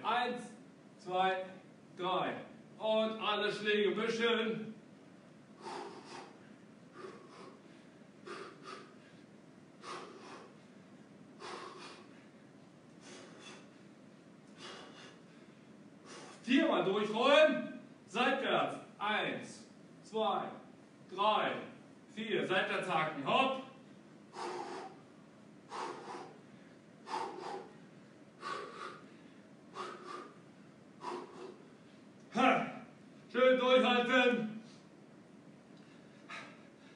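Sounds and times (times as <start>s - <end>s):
boxer exhaling sharply: 5.6s - 9.2s, 9.8s - 10.6s, 11.4s - 12.3s, 13.0s - 13.8s, 14.6s - 15.4s, 24.4s - 25.0s, 25.7s - 26.4s, 27.0s - 27.8s, 28.4s - 29.2s, 29.8s - 30.4s, 31.0s - 31.7s, 36.1s - 36.9s
short sharp breaths: 5.6s - 16.6s, 24.0s - 32.2s, 34.6s - 35.0s, 35.8s - 36.9s.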